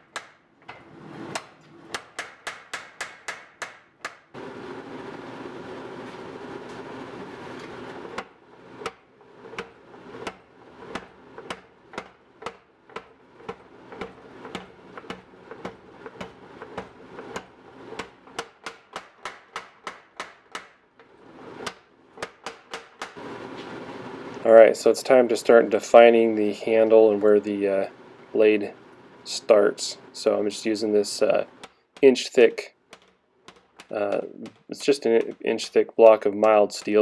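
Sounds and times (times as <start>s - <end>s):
power hammer striking hot metal: 1.3s - 4.3s, 8.1s - 20.8s, 21.5s - 23.2s, 33.5s - 35.7s, 36.3s - 37.0s.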